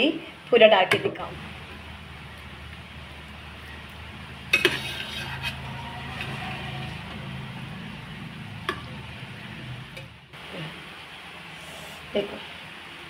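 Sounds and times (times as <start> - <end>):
spoon scraping rice in pot: 4.6 - 6.4.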